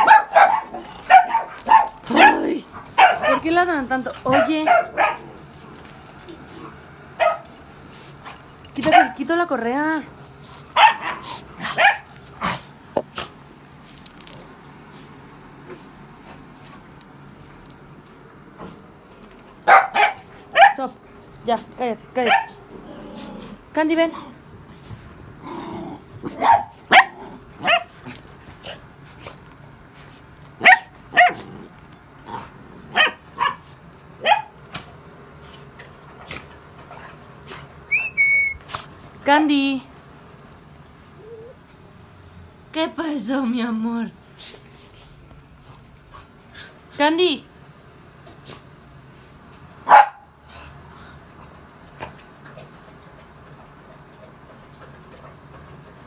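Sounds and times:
dog barking: 0.0s - 3.5s, 4.3s - 5.3s, 7.2s - 7.4s, 8.8s - 9.2s, 10.8s - 12.1s, 19.6s - 20.9s, 22.3s - 22.6s, 26.4s - 27.9s, 30.6s - 31.4s, 32.9s - 33.6s, 34.2s - 34.6s, 49.9s - 50.3s.

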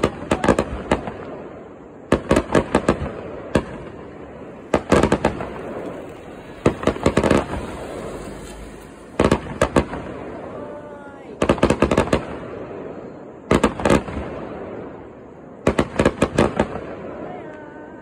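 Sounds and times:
firework shells bursting: 0.0s - 10.6s
fireworks rumble: 0.0s - 18.0s.

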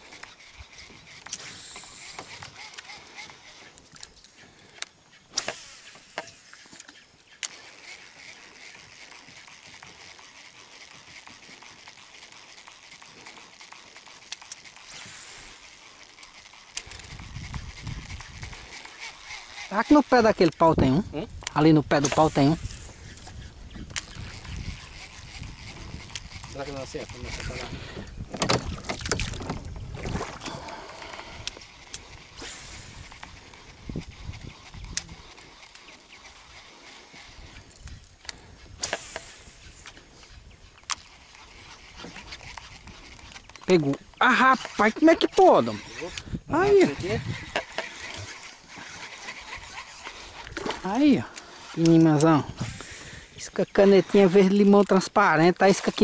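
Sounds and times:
sharp ticks: 0.0s - 28.2s, 30.4s - 56.0s
fishing reel clicks: 0.0s - 56.0s
knocks and rattles in boat: 28.0s - 31.0s.

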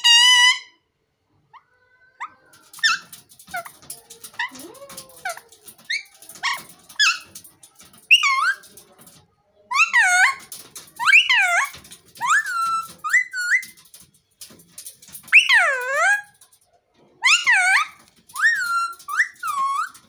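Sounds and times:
parakeet chirps and squawks: 9.7s - 14.0s, 17.2s - 20.0s.

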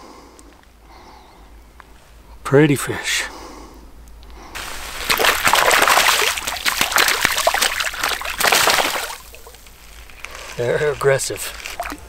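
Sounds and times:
fish splashing in shallow water: 4.6s - 10.3s, 11.6s - 12.0s.

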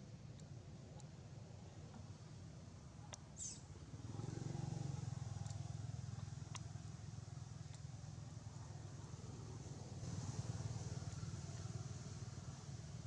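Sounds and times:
brief high squeak: 3.4s - 3.6s.

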